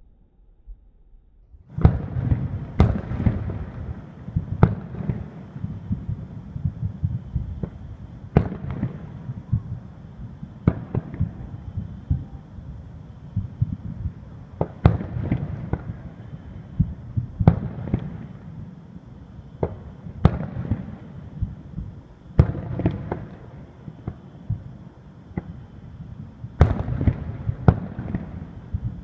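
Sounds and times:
low rumble: 0.0 - 4.7
firework shells booming: 1.7 - 12.5, 13.3 - 18.6, 19.6 - 24.7, 26.5 - 29.0
firework crackling: 1.7 - 29.0.

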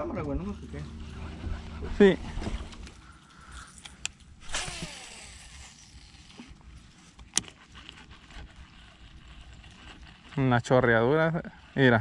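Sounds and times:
sharp reel click: 3.8 - 6.1
small handling clicks: 7.1 - 8.0.

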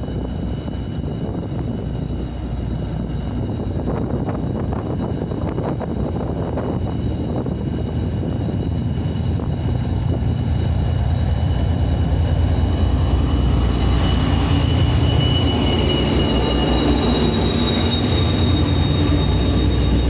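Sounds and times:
diesel locomotive engine rumbling: 0.0 - 20.0
steady high whine: 0.0 - 20.0.

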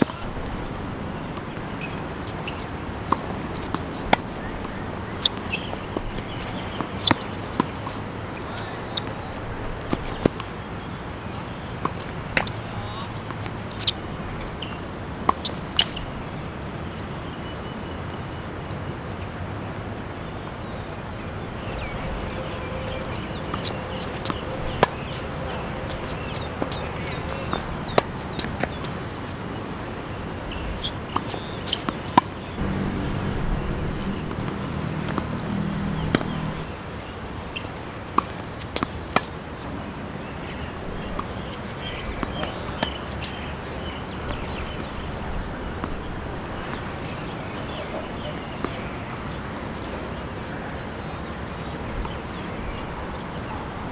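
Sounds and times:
tennis ball hit and bouncing: 0.0 - 0.5, 1.2 - 10.6, 11.7 - 16.0, 22.8 - 29.2, 30.8 - 36.7, 37.3 - 39.3, 41.0 - 43.3, 43.9 - 51.1
low hum: 32.6 - 36.7.

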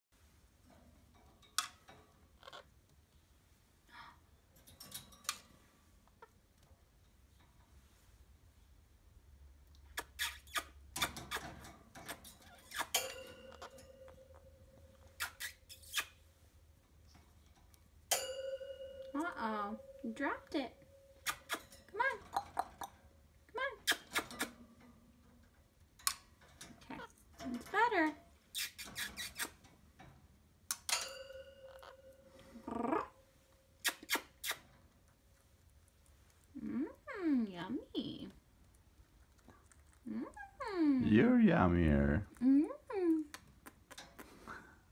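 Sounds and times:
parrot squeaks and clicks: 9.9 - 13.8, 15.0 - 16.2, 21.2 - 22.9, 23.8 - 24.6, 28.5 - 29.6, 33.8 - 34.6
faint steady tone: 13.0 - 15.2, 16.8 - 23.1, 30.9 - 33.8.

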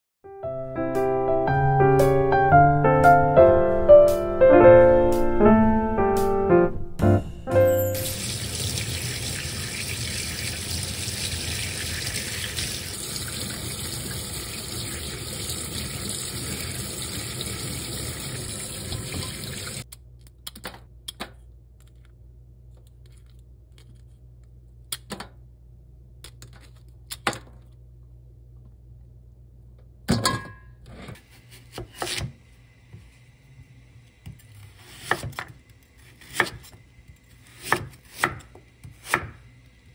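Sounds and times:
tap water running into sink: 8.0 - 19.8.

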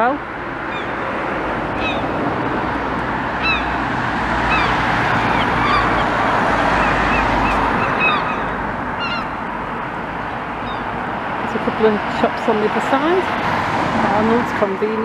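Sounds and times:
road traffic noise: 0.0 - 15.0
vehicle passing: 0.0 - 15.0
short bird calls: 6.8 - 9.4.

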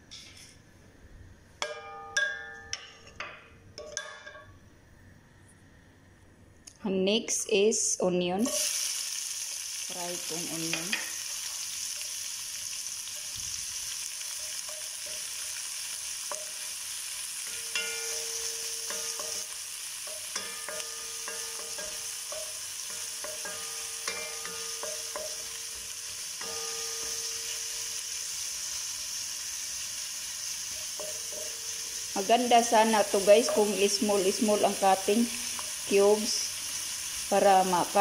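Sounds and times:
onions sizzling in oil: 8.3 - 38.0.

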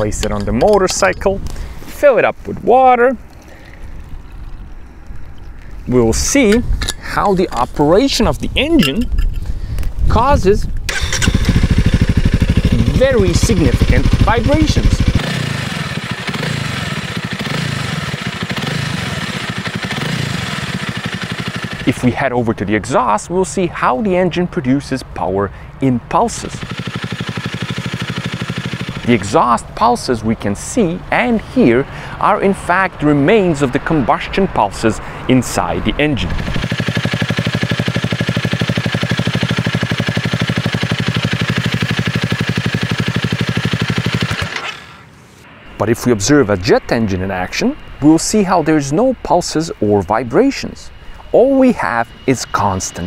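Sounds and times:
motorcycle engine idling: 10.9 - 22.0, 26.5 - 29.6, 36.4 - 44.8.

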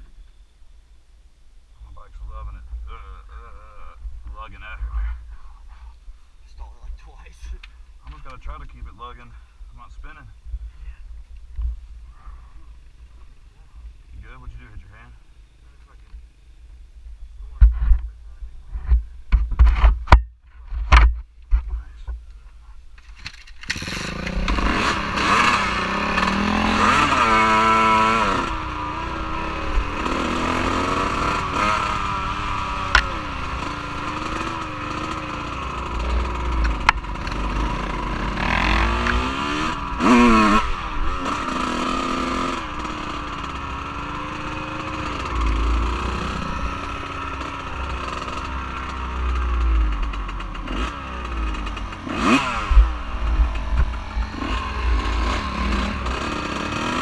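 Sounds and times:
off-road vehicle engine revving: 23.6 - 57.0.

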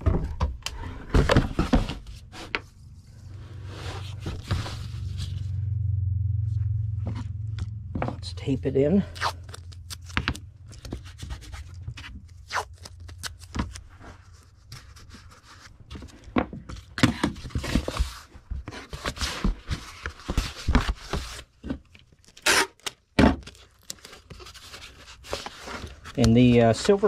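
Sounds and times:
package rustling and scraping: 0.8 - 5.6, 9.1 - 27.0
tape being pulled and torn: 9.1 - 14.4, 22.3 - 24.6.

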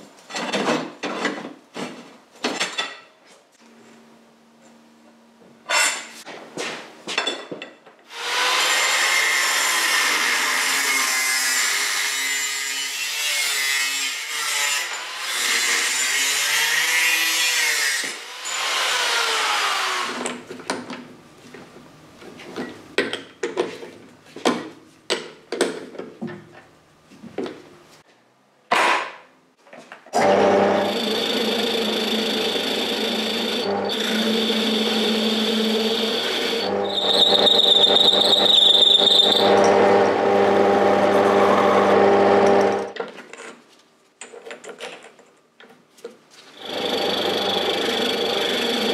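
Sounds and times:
angle grinder cutting metal: 8.1 - 20.2, 30.2 - 42.9, 46.6 - 48.9.

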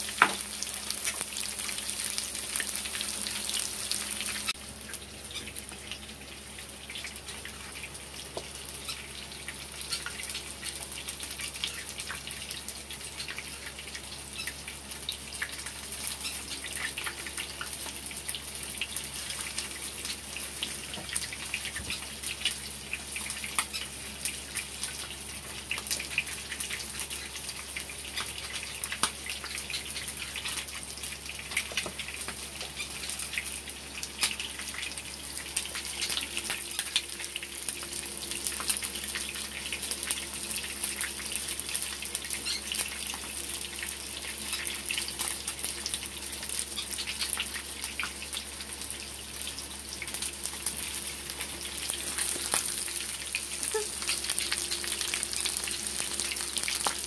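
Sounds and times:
hot oil sizzling in a frying pan: 0.0 - 57.0.

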